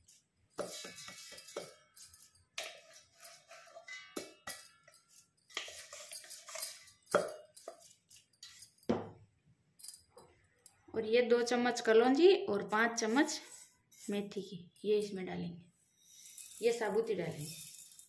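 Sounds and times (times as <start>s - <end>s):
spice rattling into a bowl: 0.0s - 8.8s
metal clinks and knocks: 0.0s - 10.8s, 16.1s - 18.0s.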